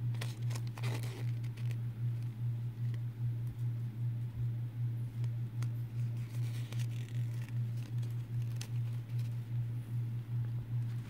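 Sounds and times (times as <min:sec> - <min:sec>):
packaging clicks and crinkles: 0:00.0 - 0:02.3, 0:06.0 - 0:09.4
packaging rustle: 0:00.0 - 0:02.3, 0:05.9 - 0:09.4
loud pulsing low hum: 0:00.0 - 0:11.0.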